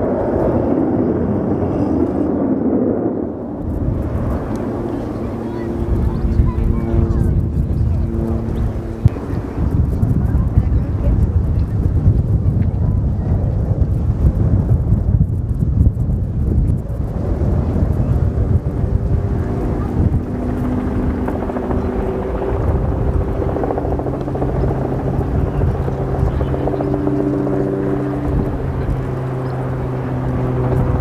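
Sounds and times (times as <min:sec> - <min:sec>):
jet bomber engines droning: 0:00.0 - 0:31.0.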